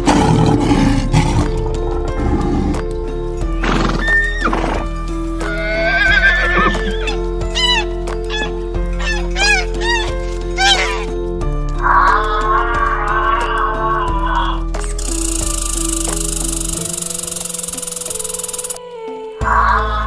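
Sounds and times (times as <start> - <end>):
lion roaring: 0.0 - 11.2, 11.8 - 14.6
background music: 0.0 - 20.0
horse whinnying: 3.6 - 11.2, 11.8 - 14.6.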